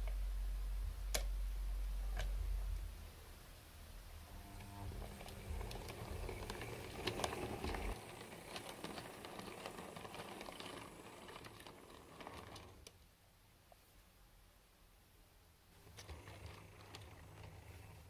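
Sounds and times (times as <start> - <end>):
light mechanical whir: 4.1 - 13.0, 15.8 - 18.0
model train wheels clicking: 4.6 - 13.0, 15.8 - 18.0.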